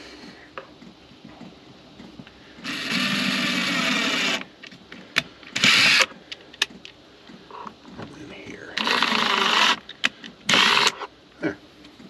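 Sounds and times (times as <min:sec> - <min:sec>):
power drill boring into wood: 0:02.6 - 0:04.5, 0:05.6 - 0:06.1, 0:08.8 - 0:09.8, 0:10.5 - 0:11.0.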